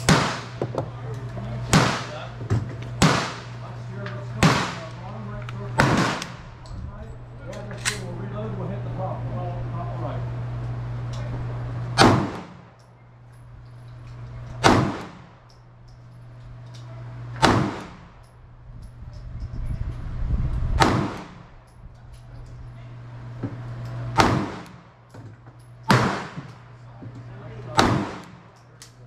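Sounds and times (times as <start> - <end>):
pistol shots: 0.0 - 0.6, 1.7 - 2.3, 3.0 - 3.6, 4.4 - 5.0, 5.8 - 6.4, 12.0 - 12.6, 14.6 - 15.3, 17.4 - 18.1, 20.8 - 21.4, 24.2 - 24.8, 25.9 - 26.6, 27.7 - 28.5.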